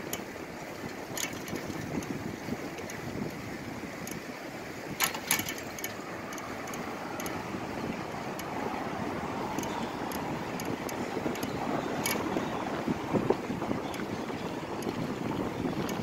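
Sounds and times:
wind on microphone: 0:00.0 - 0:16.0
sharp clicks or rattles: 0:01.1 - 0:01.7, 0:05.0 - 0:07.4, 0:11.3 - 0:12.2.

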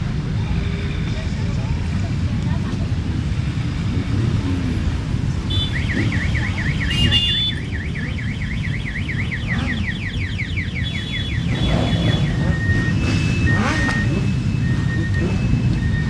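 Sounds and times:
motorcycle engines rumbling: 0:00.0 - 0:16.0
warbling electronic siren tone: 0:05.7 - 0:16.0.

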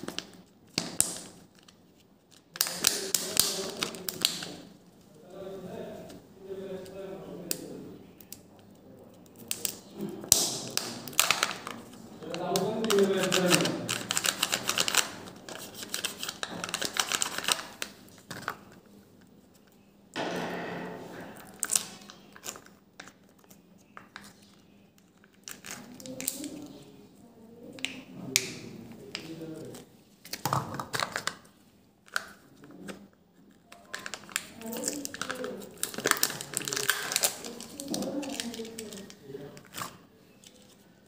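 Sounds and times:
foil seal crinkling and tearing: 0:00.0 - 0:04.7, 0:10.5 - 0:18.7, 0:21.6 - 0:24.2, 0:33.7 - 0:40.8.

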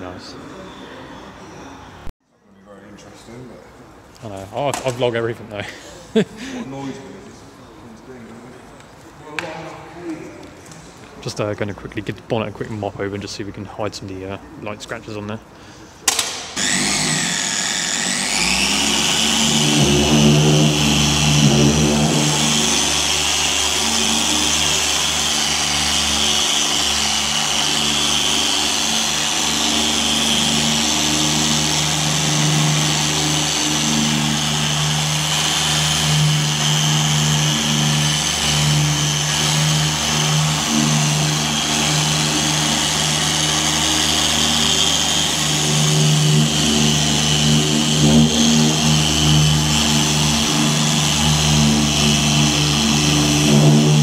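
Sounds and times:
electric polisher motor hum: 0:16.1 - 0:54.0.

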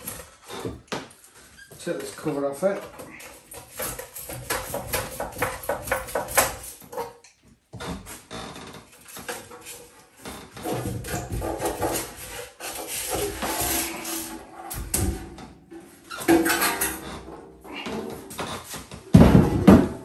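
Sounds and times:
metal panels scraping and rattling: 0:08.8 - 0:20.0
heavy thump: 0:19.1 - 0:20.0.

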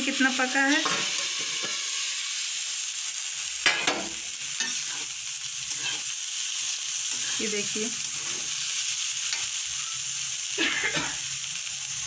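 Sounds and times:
potatoes sizzling in oil: 0:00.0 - 0:12.0
spatula scraping a pan: 0:03.7 - 0:06.2, 0:07.1 - 0:09.5.

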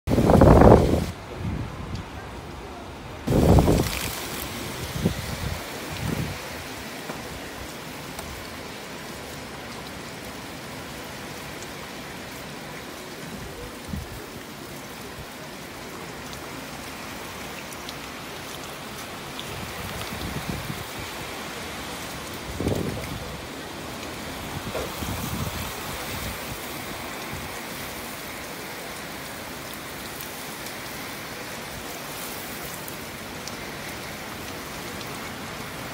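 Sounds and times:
wind gusts buffeting microphone: 0:00.1 - 0:06.6, 0:19.5 - 0:21.3, 0:22.4 - 0:23.6, 0:24.3 - 0:27.6
heavy rain pouring: 0:00.1 - 0:35.9.

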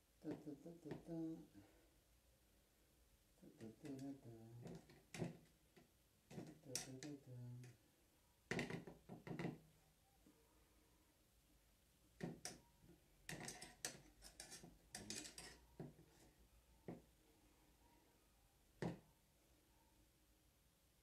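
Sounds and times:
metal tongs clicking on dishes: 0:13.3 - 0:15.6.

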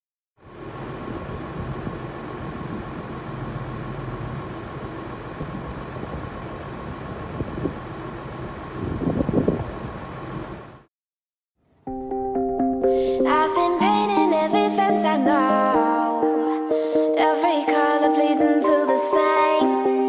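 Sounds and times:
diesel tractor engine running: 0:00.4 - 0:10.9.

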